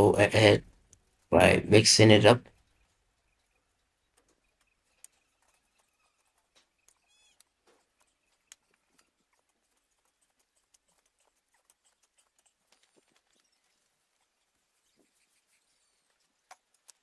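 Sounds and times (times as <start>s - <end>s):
faint clicks: 3.4s - 14.3s, 16.1s - 17.0s.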